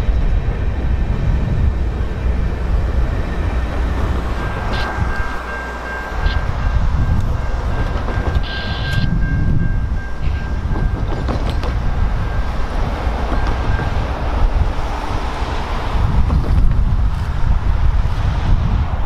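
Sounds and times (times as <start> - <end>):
train rumble: 0.0 - 19.0
crossing warning bell ringing: 2.4 - 15.8.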